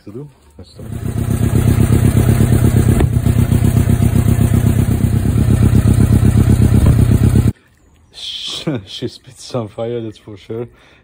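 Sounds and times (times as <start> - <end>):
motorcycle engine exhaust beat: 0.8 - 7.5
sharp exhaust pop: 0.8 - 7.5.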